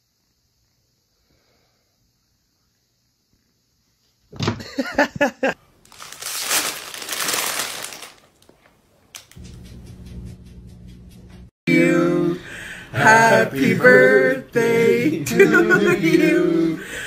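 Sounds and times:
plastic bag crinkling: 5.8 - 9.3.

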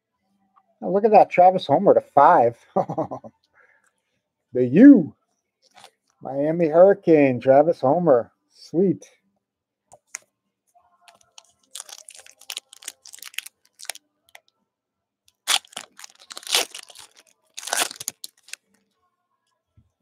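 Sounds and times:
plastic wrapper crinkling: 5.7 - 5.9, 11.1 - 14.5, 15.3 - 18.7
plastic wrapper ripping: 5.7 - 5.9, 11.1 - 14.4, 15.3 - 18.7.

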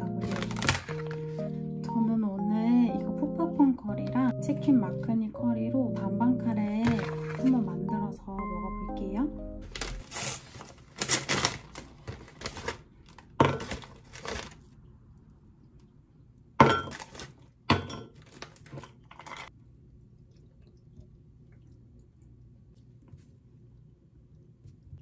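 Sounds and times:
plastic bag crinkling: 0.0 - 1.6, 6.8 - 7.5, 9.7 - 14.7.

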